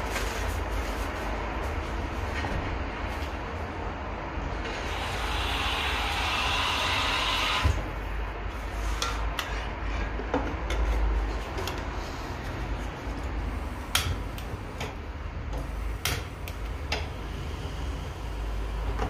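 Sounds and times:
hiss: 0:04.7 - 0:07.8.

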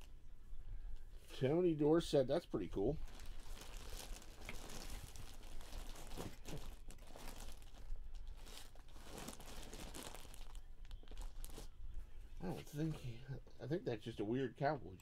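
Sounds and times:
small crackles: 0:02.9 - 0:12.1
plastic bag crinkling: 0:03.0 - 0:11.8.

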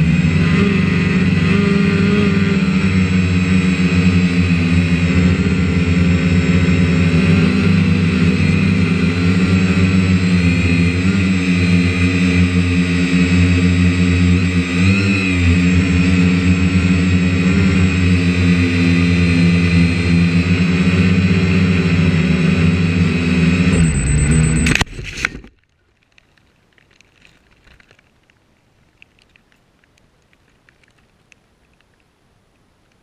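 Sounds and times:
drone motors and propellers: 0:00.0 - 0:25.5
drone crashing into brush: 0:23.7 - 0:25.5
faint ticks: 0:25.6 - 0:33.0.

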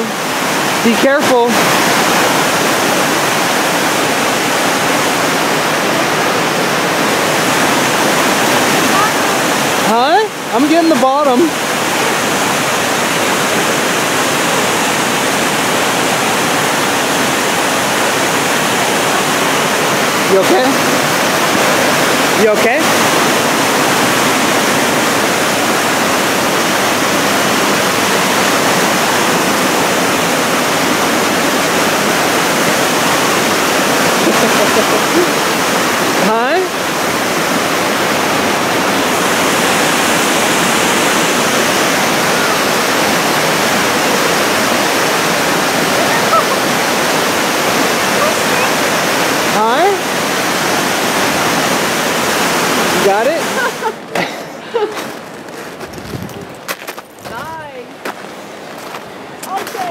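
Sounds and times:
rapids rushing over rocks: 0:00.0 - 0:59.9.

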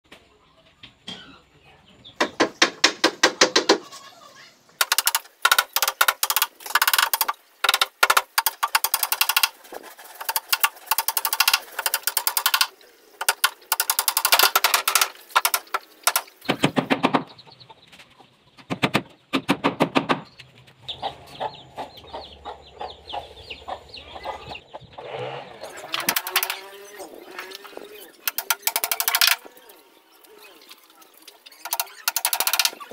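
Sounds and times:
hammer tapping on wooden boards: 0:02.2 - 0:03.8, 0:04.8 - 0:09.5, 0:10.2 - 0:17.3, 0:26.0 - 0:26.6, 0:28.3 - 0:29.4.

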